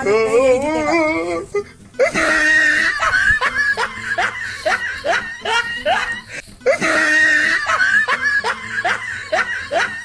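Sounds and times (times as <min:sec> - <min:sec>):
person laughing: 0:01.4 - 0:10.0.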